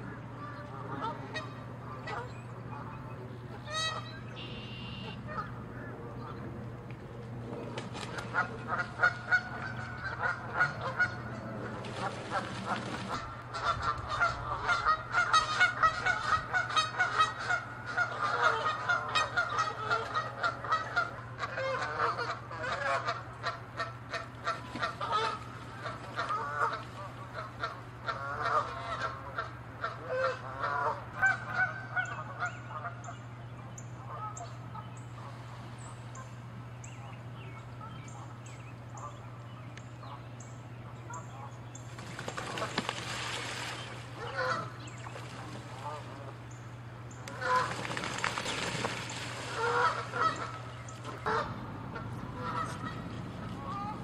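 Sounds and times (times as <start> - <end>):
geese honking: 0.0 - 6.4, 8.1 - 33.2, 34.0 - 35.4, 42.2 - 46.6, 47.2 - 54.0
water splashing: 7.5 - 13.7, 41.9 - 46.4, 47.3 - 51.5.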